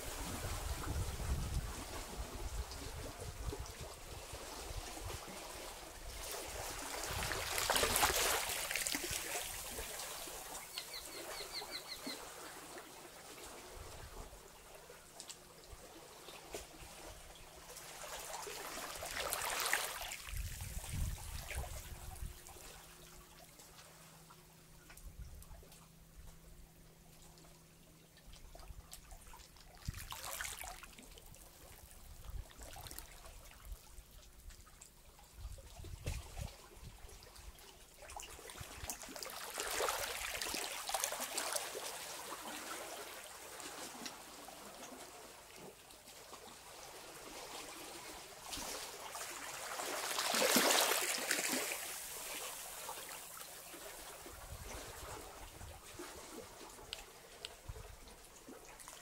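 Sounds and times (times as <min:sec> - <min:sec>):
seawater washing over rocks: 0:06.2 - 0:10.9, 0:47.8 - 0:54.2.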